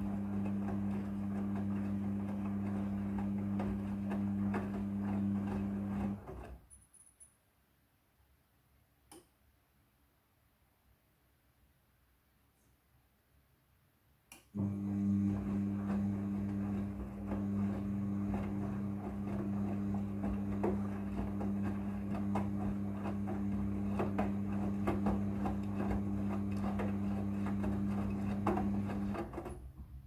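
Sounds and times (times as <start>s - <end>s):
washing machine motor humming: 0.0s - 6.6s, 14.6s - 30.0s
knocks and clicks from tumbling load: 15.4s - 30.0s.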